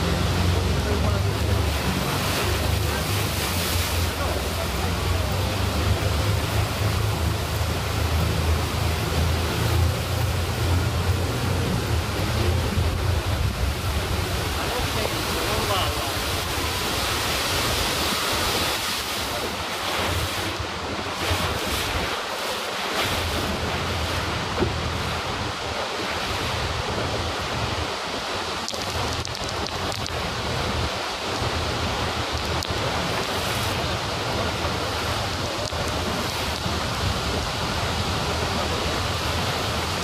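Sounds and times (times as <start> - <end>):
wind buffeting microphone: 0.0 - 22.3
rushing river water and waterfalls: 0.0 - 40.0.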